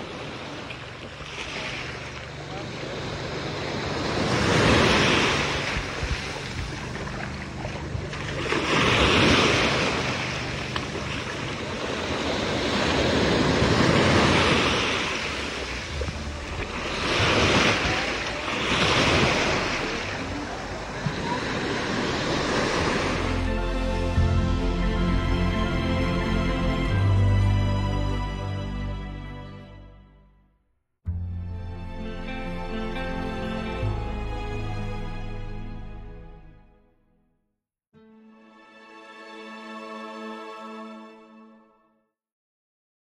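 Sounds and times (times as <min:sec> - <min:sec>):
waves against boat hull: 0:00.0 - 0:23.4
small waves washing on shore: 0:00.0 - 0:23.6
wind buffeting microphone: 0:05.4 - 0:08.4.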